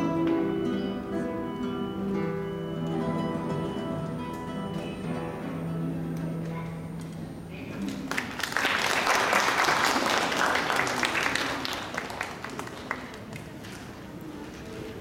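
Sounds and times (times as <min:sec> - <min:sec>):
audience applause: 0:07.8 - 0:13.7.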